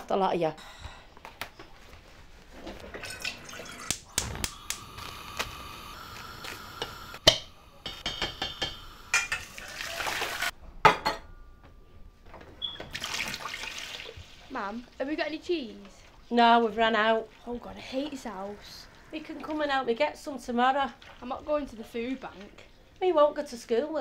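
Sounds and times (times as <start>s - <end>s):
pots and pans clattering: 7.2s - 10.3s.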